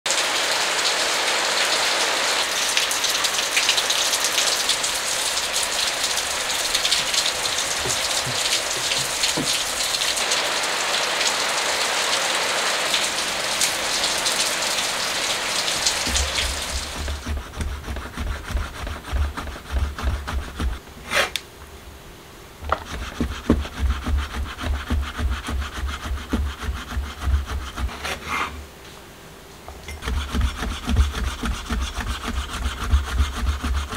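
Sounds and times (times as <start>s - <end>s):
steady rain: 0.1s - 20.8s
knife cutting on plastic board: 7.8s - 9.7s, 15.8s - 21.4s, 22.6s - 28.6s, 30.0s - 33.9s.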